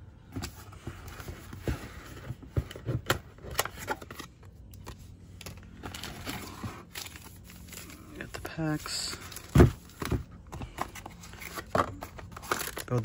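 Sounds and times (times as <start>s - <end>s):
foil packs rustling: 5.4s - 13.0s.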